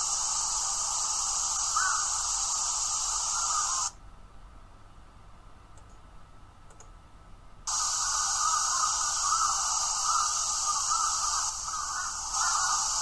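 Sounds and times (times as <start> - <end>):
steady hiss: 0.0 - 4.0, 7.6 - 13.0.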